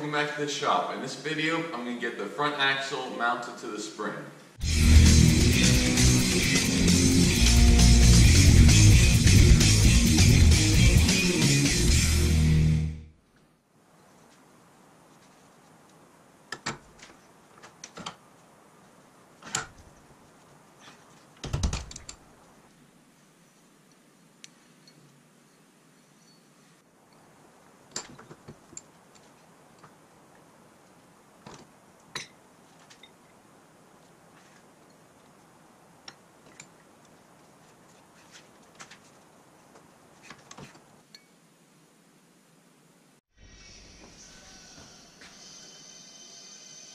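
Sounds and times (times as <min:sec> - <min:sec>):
faint room hiss: 0:00.0 - 0:04.6, 0:13.0 - 0:46.9
light metal clicks and clinks: 0:24.4 - 0:26.4.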